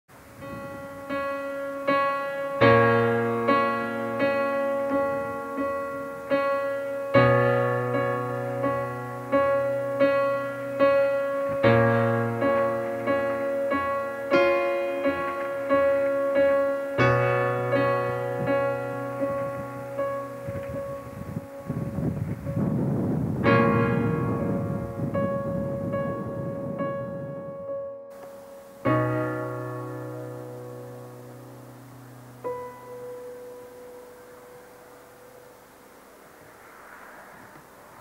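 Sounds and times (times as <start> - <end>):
piano chords ringing: 0.1 - 38.0.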